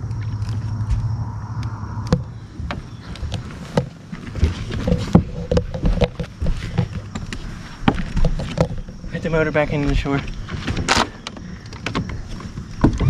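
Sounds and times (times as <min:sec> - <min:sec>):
low hum: 0:00.0 - 0:09.3
knocks and clatter in boat: 0:02.1 - 0:13.0.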